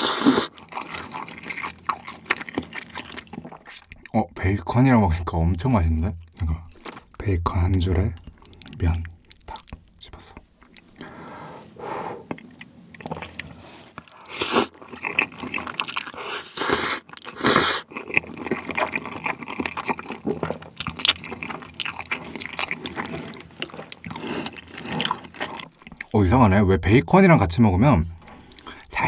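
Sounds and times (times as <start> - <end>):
loud noodle slurps: 0.0 - 0.6, 14.2 - 14.8, 16.2 - 17.9
wet chewing: 0.0 - 4.2, 6.2 - 26.3, 28.1 - 29.0.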